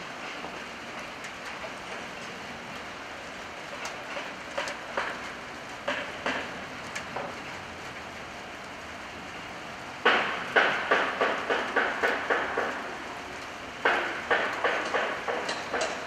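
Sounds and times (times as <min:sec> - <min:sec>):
steady hiss: 0:00.0 - 0:16.0
train wheels knocking over rail joints: 0:04.2 - 0:07.4, 0:10.0 - 0:13.1, 0:13.8 - 0:16.0.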